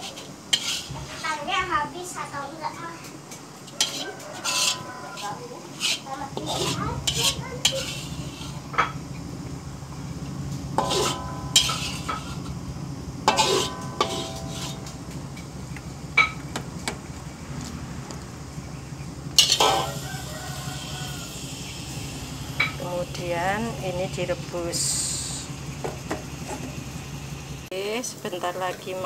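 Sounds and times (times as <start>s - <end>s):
metal spatula scraping a wok: 0.0s - 1.5s, 3.5s - 9.0s, 10.8s - 12.6s, 13.2s - 15.6s, 19.4s - 25.7s
steady low hum: 5.6s - 29.0s.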